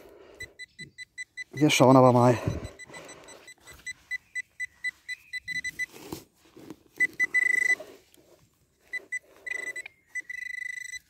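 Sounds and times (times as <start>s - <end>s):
metal detector pinpointer beeping: 0.4s - 5.9s, 7.0s - 7.9s, 8.8s - 11.0s
soil being scraped: 5.6s - 9.8s.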